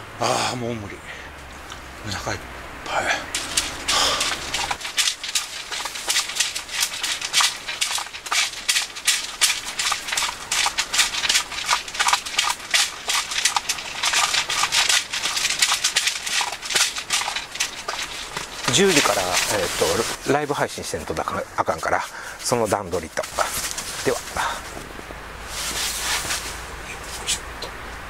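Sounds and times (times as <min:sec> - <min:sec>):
dogs chewing and licking: 0:03.4 - 0:20.2.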